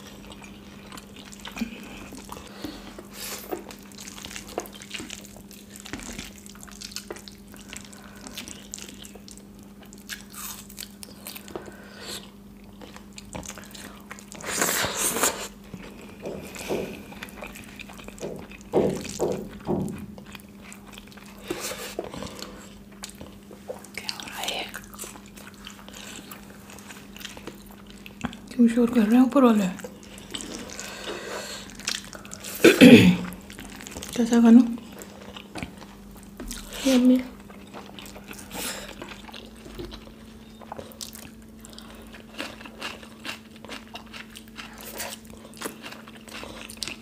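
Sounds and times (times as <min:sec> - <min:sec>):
wet chewing and mouth smacking: 0:00.0 - 0:28.6, 0:29.8 - 0:32.6, 0:33.3 - 0:47.0
faint steady hum: 0:00.0 - 0:47.0.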